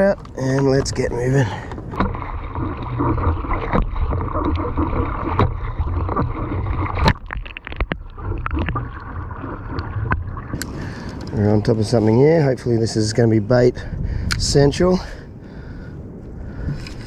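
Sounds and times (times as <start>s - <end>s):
paddle splashing in water: 0.0s - 12.1s
low steady rumble: 0.0s - 17.0s
water dripping off paddle: 1.6s - 11.4s.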